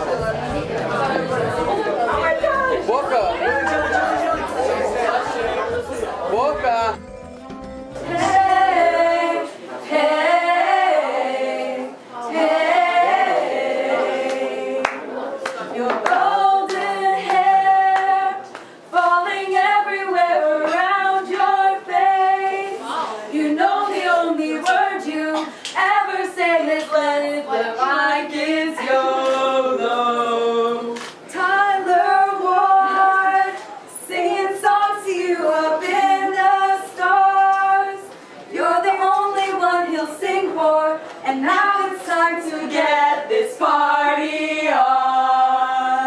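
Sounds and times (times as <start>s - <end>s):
girls singing unaccompanied: 0.0s - 6.4s, 7.7s - 46.0s.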